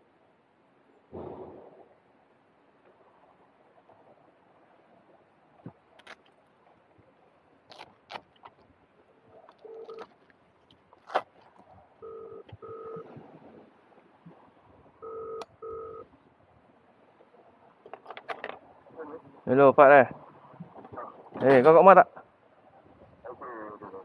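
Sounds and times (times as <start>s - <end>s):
phone handling clicks and rustles: 9.5s - 11.7s, 17.8s - 18.6s
phone ringback tone: 12.0s - 13.1s, 15.0s - 16.1s.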